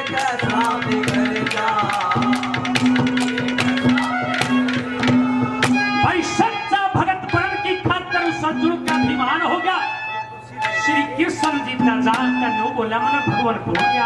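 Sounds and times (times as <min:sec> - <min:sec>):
hand drum strokes: 0:00.0 - 0:06.5
harmonium playing: 0:00.0 - 0:14.0.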